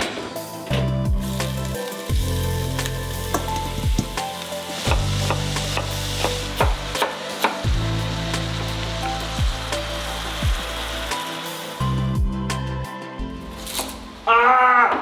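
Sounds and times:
background music with bass and kick: 0.0s - 14.2s
sizzling hiss: 0.2s - 14.3s.

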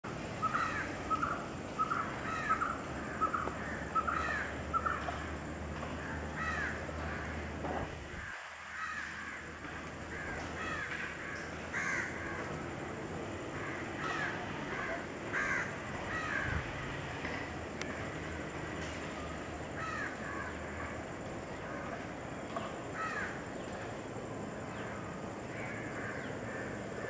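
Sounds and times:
birds calling: 0.1s - 27.0s.

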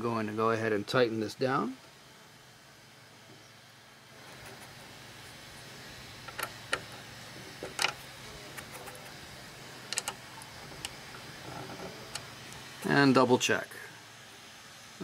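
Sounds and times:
small metallic clicks: 6.2s - 6.9s, 7.6s - 8.0s, 9.9s - 12.6s.

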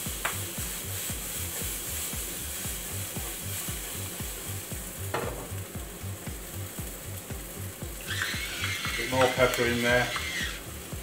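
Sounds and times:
food sizzling in frying pan: 0.0s - 11.0s
pan knocking on burner: 5.1s - 5.6s.

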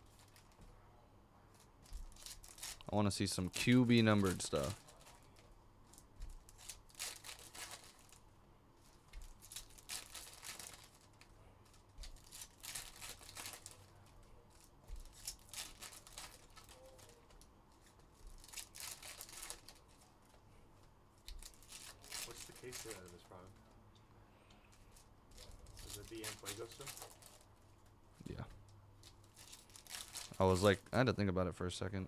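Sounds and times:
foil wrappers tearing and crinkling: 1.8s - 5.4s, 6.2s - 8.2s, 9.2s - 17.3s, 18.2s - 20.1s, 21.2s - 23.5s, 24.9s - 27.5s, 29.0s - 30.8s.

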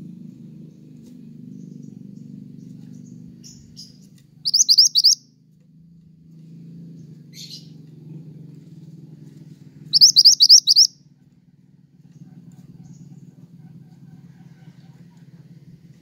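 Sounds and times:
steady low hum: 0.0s - 5.3s
songbird chirping: 1.5s - 5.2s, 9.9s - 11.0s.

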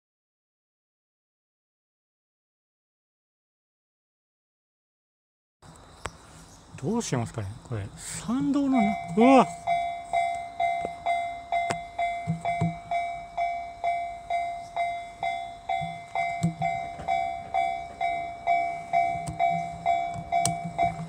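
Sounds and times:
level crossing warning bell: 8.3s - 21.0s.

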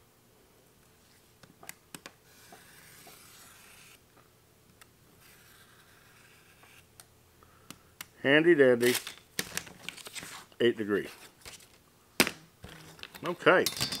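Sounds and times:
knife cutting along ruler: 2.3s - 4.0s.

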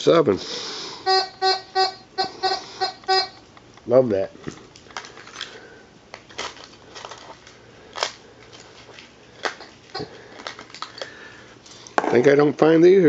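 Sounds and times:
small metal objects clicking: 8.0s - 12.0s.

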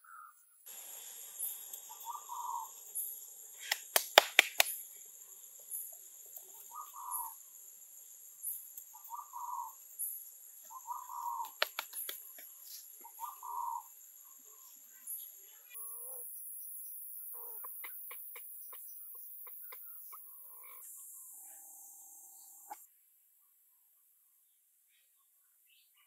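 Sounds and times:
high insect drone: 0.7s - 22.9s
sharp clicks: 3.6s - 4.8s, 11.4s - 12.4s.

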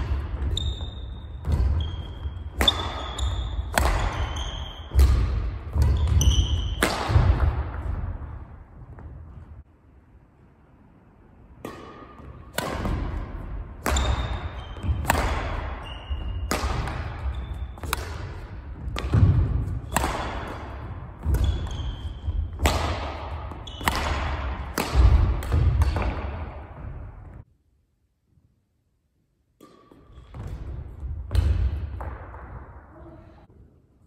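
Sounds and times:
racket striking shuttlecock: 0.0s - 8.1s, 11.6s - 26.9s, 29.6s - 32.6s.

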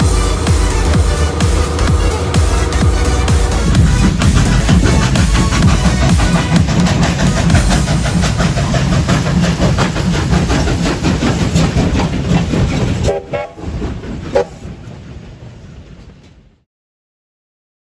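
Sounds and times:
steam locomotives rumbling past: 0.0s - 16.7s.

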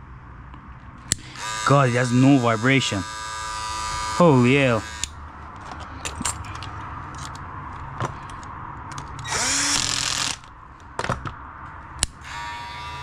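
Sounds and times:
hair clipper motor running: 1.1s - 5.2s, 9.2s - 10.4s, 12.2s - 13.0s.

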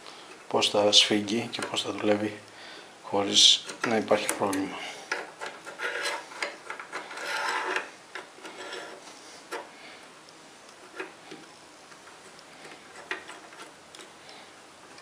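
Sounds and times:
steel parts scraping and clicking: 3.6s - 9.7s.

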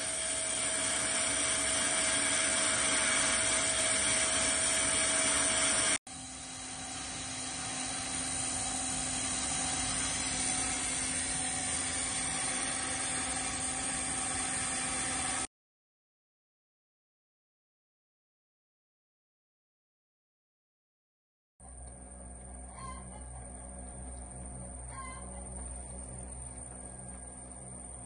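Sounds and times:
lathe motor whirring with whine: 0.0s - 15.5s.

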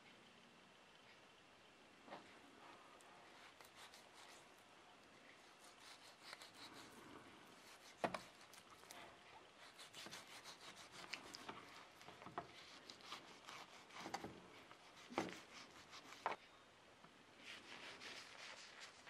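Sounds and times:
knife scraping through fat: 3.4s - 4.4s, 5.5s - 7.0s, 7.6s - 9.0s, 9.6s - 16.3s, 17.4s - 19.0s.

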